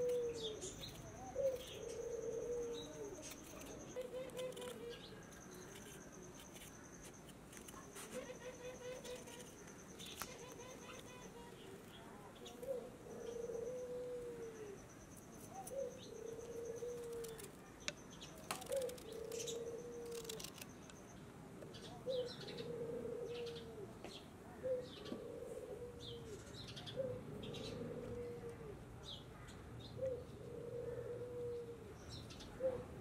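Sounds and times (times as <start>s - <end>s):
dove cooing: 0.0s - 5.3s, 12.4s - 14.8s, 15.5s - 17.5s, 18.6s - 20.5s, 22.0s - 24.0s, 24.6s - 28.8s, 30.0s - 33.0s
knife scraping ginger: 2.7s - 11.3s, 17.0s - 17.6s, 18.4s - 20.7s.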